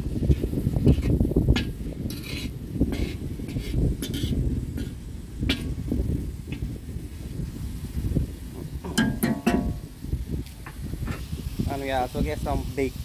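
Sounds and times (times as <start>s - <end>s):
wind rumble on microphone: 0.0s - 13.0s
metal spatula scraping a pot: 0.3s - 5.7s.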